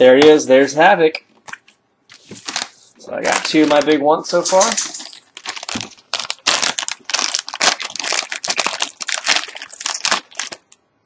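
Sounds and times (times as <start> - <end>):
plastic wrappers crinkling: 1.4 - 10.8.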